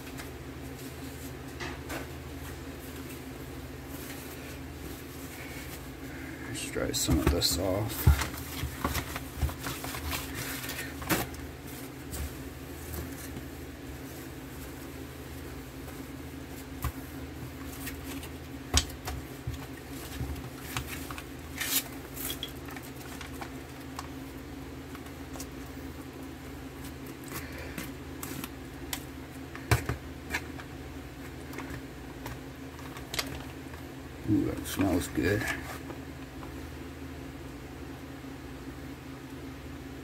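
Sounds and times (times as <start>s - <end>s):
foil pouch crinkling: 7.8s - 12.1s, 19.6s - 24.2s.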